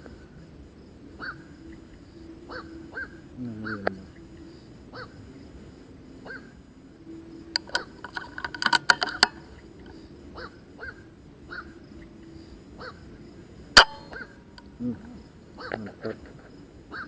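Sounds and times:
short animal calls: 1.1 - 1.5, 2.5 - 4.2, 4.9 - 5.2, 10.3 - 11.8, 14.0 - 16.2
run of sharp clicks: 7.5 - 10.0.

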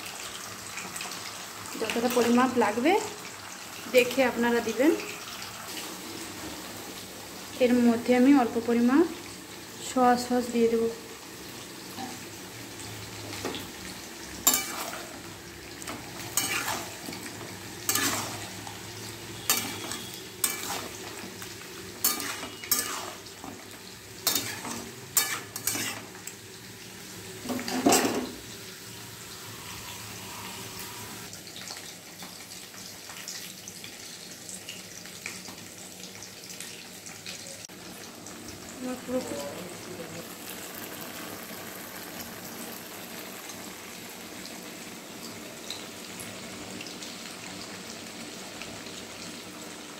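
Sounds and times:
food sizzling: 0.0 - 49.9
metal spatula scraping a wok: 14.4 - 15.2, 16.2 - 18.6, 19.3 - 21.4, 22.0 - 23.6, 24.2 - 26.2.

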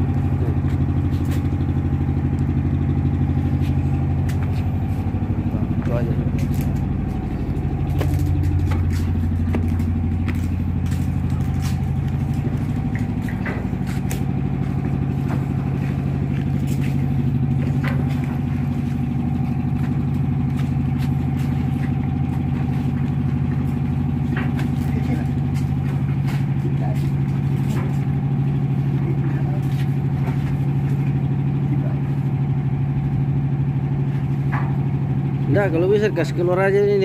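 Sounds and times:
diesel engine droning: 0.0 - 37.0
knocks and clanks on steel deck: 7.1 - 29.3, 34.1 - 35.1.

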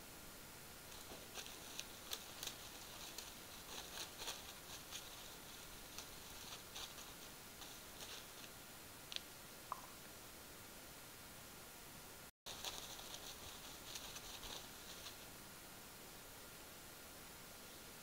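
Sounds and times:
steady hiss: 0.0 - 18.0
crunching on snow: 0.9 - 8.6, 12.5 - 15.3.

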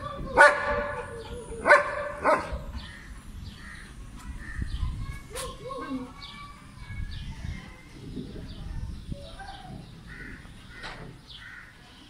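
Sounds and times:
steady low rumble: 0.0 - 5.7
birds chirping: 0.0 - 12.0.

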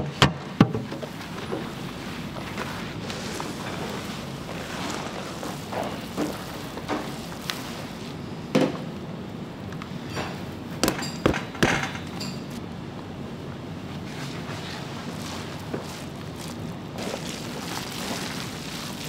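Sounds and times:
steady background noise: 0.0 - 19.0
utensils and dishes knocking: 10.1 - 12.6.

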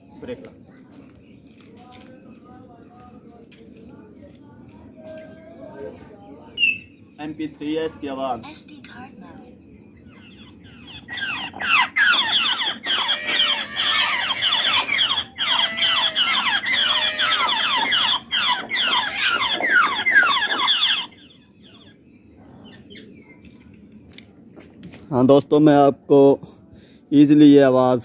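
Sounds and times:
recorded bird calls through speaker: 4.2 - 7.2, 9.4 - 23.7.

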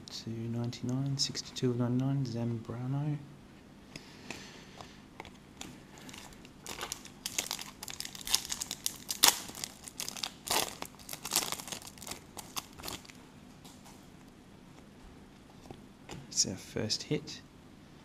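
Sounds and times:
foil wrapper tearing and crinkling: 6.0 - 13.2.

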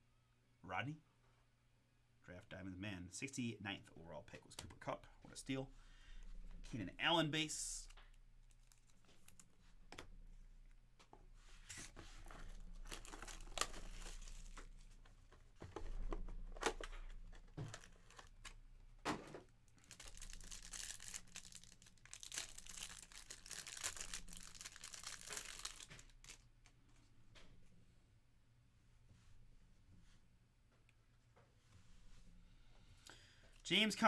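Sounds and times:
packaging tearing and crinkling: 12.8 - 14.7, 19.8 - 26.5.

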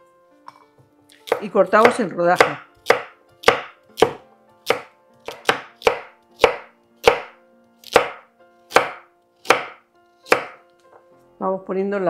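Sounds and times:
knife chopping carrots on board: 1.1 - 10.6.

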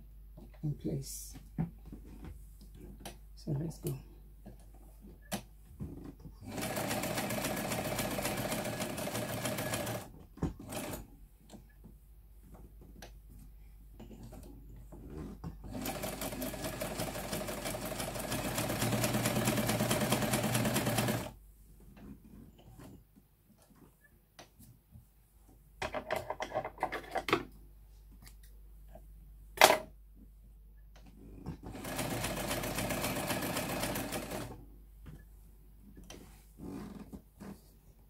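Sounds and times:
electric sewing machine stitching: 6.5 - 11.0, 15.7 - 21.4, 31.6 - 34.6.

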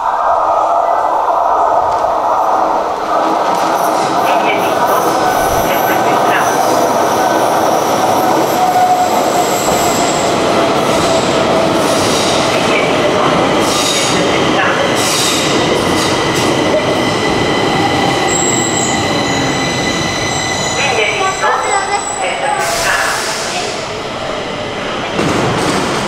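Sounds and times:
metro train slowing into station: 0.0 - 26.0.

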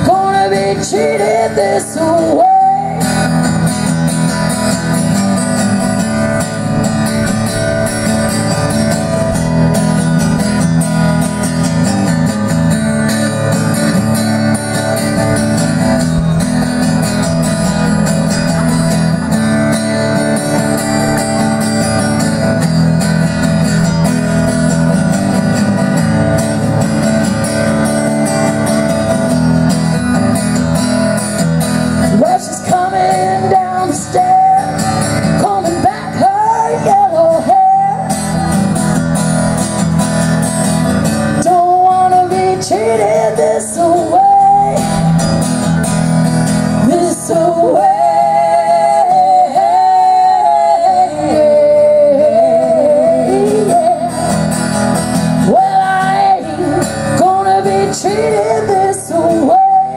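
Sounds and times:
woman singing: 0.0 - 3.7, 32.0 - 38.5, 41.4 - 45.2, 46.7 - 54.6, 55.2 - 59.9
acoustic guitar strumming: 0.0 - 59.9.

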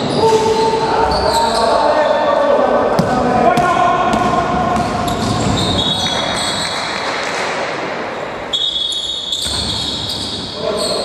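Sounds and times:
sneakers squeaking: 0.0 - 2.3, 3.0 - 7.4, 8.4 - 11.0
players' voices: 0.0 - 8.5, 10.2 - 11.0
basketball bouncing: 3.0 - 5.7
shrill high squeal: 5.1 - 6.8, 8.5 - 11.0.

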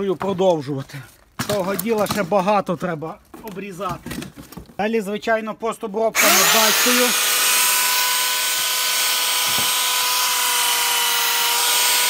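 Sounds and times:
power tool cutting: 6.2 - 12.0.

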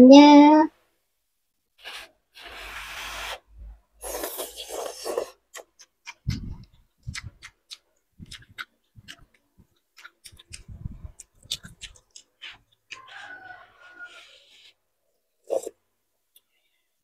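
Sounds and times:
person slurping noodles: 4.0 - 7.4, 15.4 - 15.8
person chewing: 4.0 - 13.3.

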